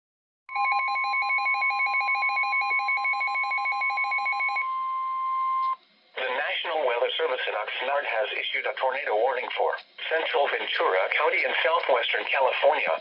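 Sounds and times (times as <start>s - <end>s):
rapid pulsing alarm beeps: 0.5s - 5.8s.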